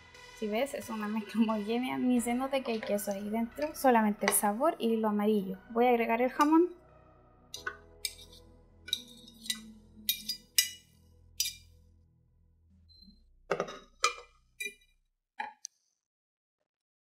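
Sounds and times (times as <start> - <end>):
metal utensil clinking on plate: 7.6 - 10.8, 11.4 - 11.6
kitchenware knocks: 13.5 - 14.3.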